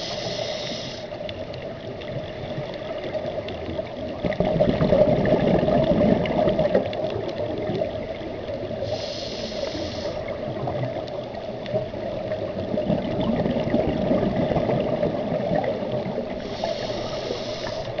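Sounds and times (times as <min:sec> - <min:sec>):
regulator inhalation hiss: 0:00.0 - 0:01.2, 0:08.8 - 0:10.4, 0:16.4 - 0:18.0
exhaled bubbles rumbling: 0:01.2 - 0:09.1, 0:10.0 - 0:18.0.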